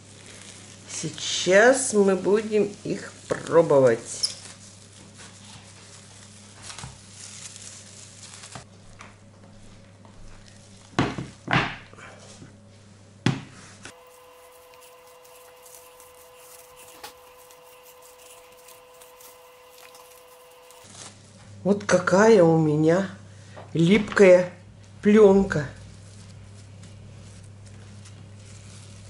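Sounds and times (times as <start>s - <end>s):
plastic film rustling: 0.0s - 9.0s, 13.9s - 21.5s, 25.4s - 29.0s.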